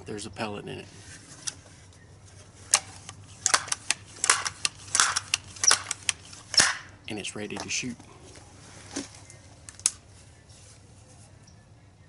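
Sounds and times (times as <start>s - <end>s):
air rifle clacks: 2.6s - 7.0s.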